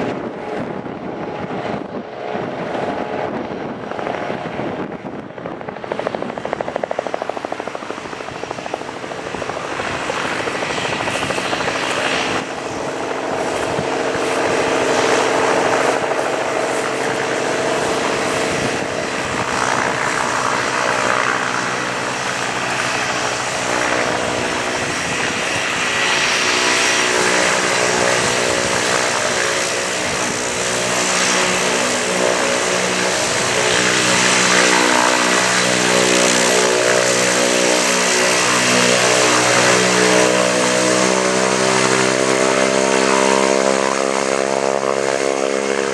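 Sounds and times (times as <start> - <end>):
high turbine whine: 0.0 - 45.9
turboprop engine droning: 0.0 - 45.9
unsteady aircraft engine: 0.0 - 45.9.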